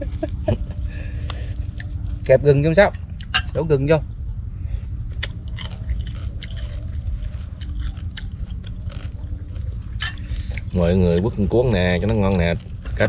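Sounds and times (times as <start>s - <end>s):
steady low rumble: 0.0s - 13.0s
chewing crisp fried fish: 1.3s - 2.3s, 5.1s - 13.0s.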